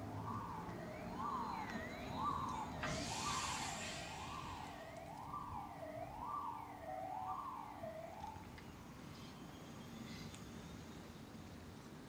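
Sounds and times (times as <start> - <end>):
distant siren wailing: 0.0 - 8.6
rush of hiss: 2.8 - 4.8.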